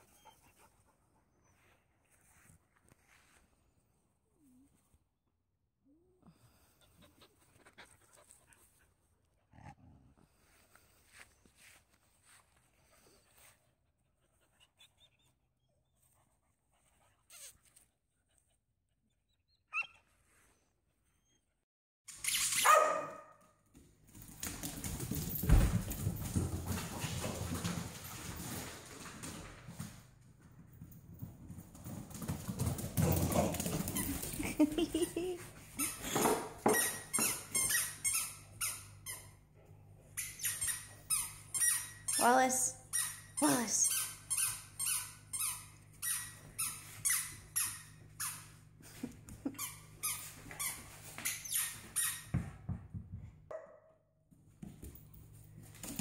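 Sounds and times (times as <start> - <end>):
puppies squeaking: 19.5 - 20.0, 40.1 - 42.2, 49.4 - 52.3
squeaky dog toy squeaks: 22.1 - 23.1, 35.8 - 39.3, 40.2 - 42.2
puppies scuffling: 23.7 - 38.7, 54.3 - 56.0.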